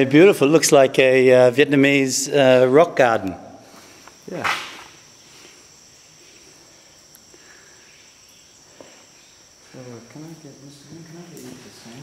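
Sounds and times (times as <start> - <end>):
insects chirring: 0.0 - 12.0
faint ticks: 7.0 - 7.4.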